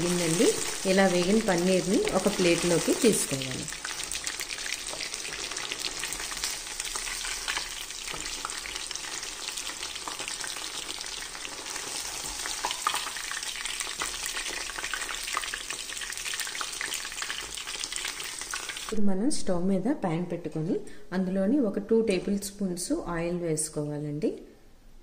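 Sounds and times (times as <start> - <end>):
food deep-frying in oil: 0.0 - 19.0.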